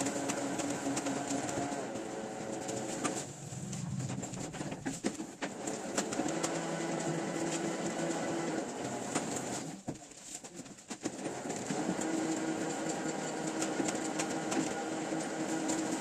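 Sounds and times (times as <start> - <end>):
paper sheets rustling and flapping: 0.0 - 16.0
low machine hum: 3.2 - 5.0.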